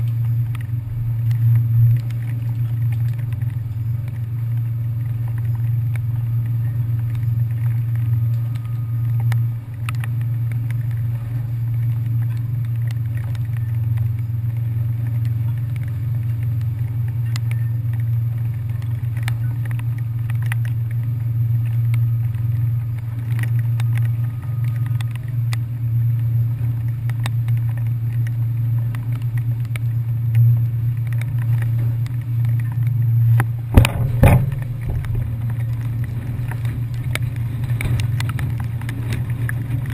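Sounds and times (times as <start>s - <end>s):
ferry engines droning: 0.0s - 39.9s
light ticks: 0.0s - 39.9s
loud knocks: 33.7s - 35.3s.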